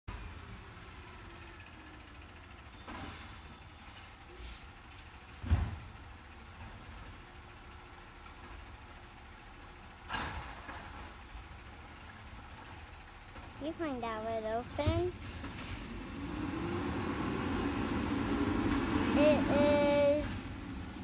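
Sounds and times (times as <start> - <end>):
air brake hiss with squeal: 2.5 - 5.0.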